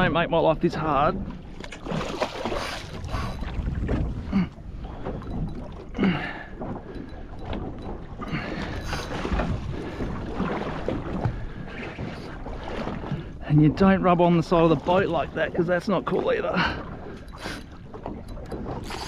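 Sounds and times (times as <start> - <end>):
water sloshing against a boat hull: 0.0 - 19.0
fish splashing at the surface: 1.6 - 3.3
wind on the microphone: 2.6 - 15.6.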